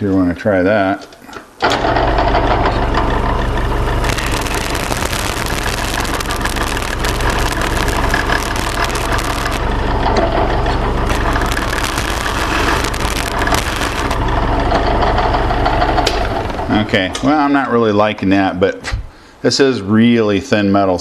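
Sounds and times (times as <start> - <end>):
drill press motor hum: 1.6 - 16.8.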